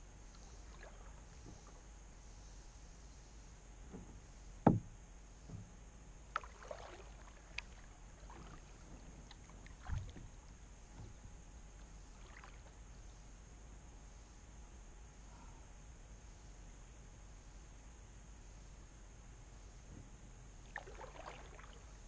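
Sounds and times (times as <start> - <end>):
faint steady hiss: 0.0 - 22.0
paddle knocking and splashing: 4.6 - 5.7, 6.3 - 11.2.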